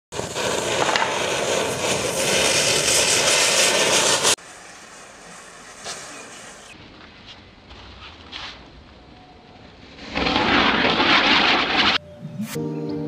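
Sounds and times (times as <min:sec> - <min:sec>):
firework rushing hiss: 0:00.1 - 0:06.8, 0:09.8 - 0:12.0.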